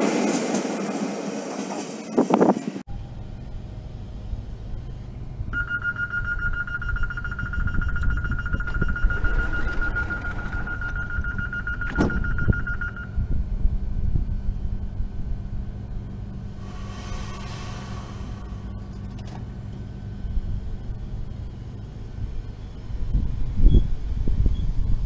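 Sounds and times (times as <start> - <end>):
train low hum: 0.0 - 25.0
rapid high-pitched beeping: 5.5 - 13.2
train doors shutting thud: 8.6 - 12.8.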